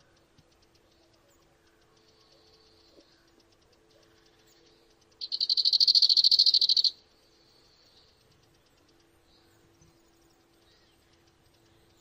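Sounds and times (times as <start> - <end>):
faint high insect ticking: 0.0 - 12.0
insect pulsed buzzing trill: 1.7 - 7.0.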